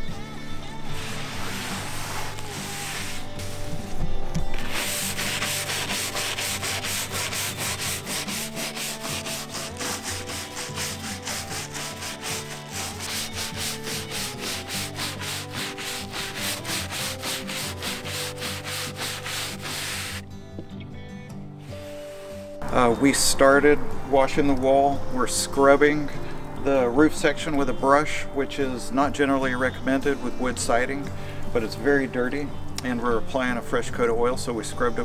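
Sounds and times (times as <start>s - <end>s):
scrub brush scrubbing wet wood: 0.9s - 3.8s, 4.6s - 20.2s.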